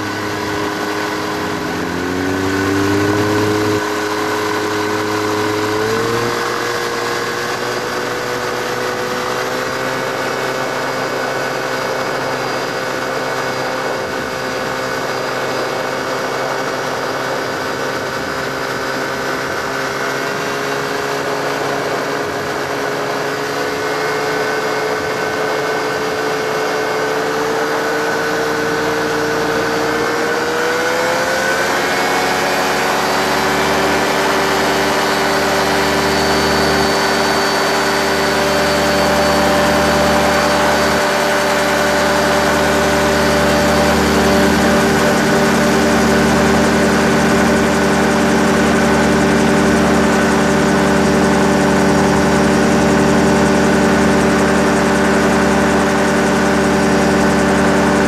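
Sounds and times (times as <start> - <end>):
gyrocopter engine running: 0.0 - 58.0.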